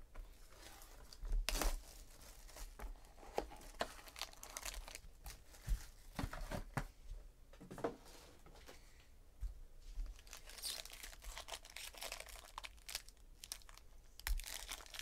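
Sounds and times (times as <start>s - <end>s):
plastic wrapping tearing: 1.0s - 2.8s, 3.6s - 5.0s, 10.2s - 15.0s.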